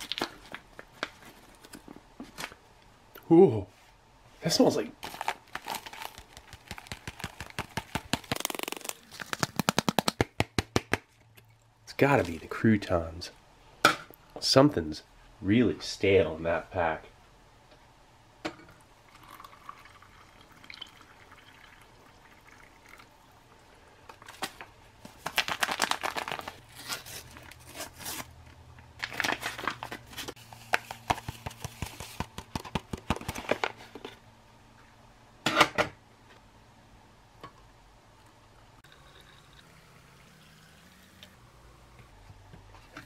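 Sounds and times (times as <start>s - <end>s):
foil packet crinkling: 0.0s - 1.8s, 5.0s - 10.4s, 24.2s - 28.3s, 29.0s - 32.2s
loud packet rustle: 5.0s - 10.3s, 24.3s - 28.3s, 29.0s - 32.2s
hot water pouring into a glass: 19.0s - 23.4s, 38.8s - 41.4s.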